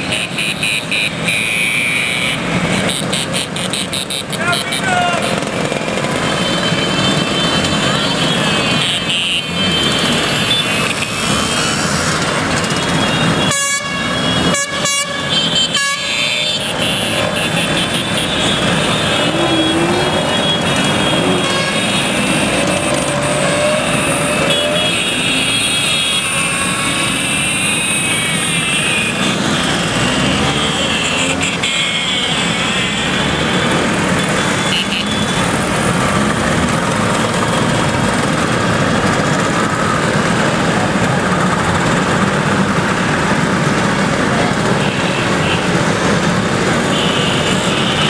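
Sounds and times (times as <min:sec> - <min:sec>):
scooter horns beeping: 0:00.0 - 0:11.1, 0:12.7 - 0:35.5, 0:46.8 - 0:48.0
scooter engines passing: 0:00.0 - 0:48.0.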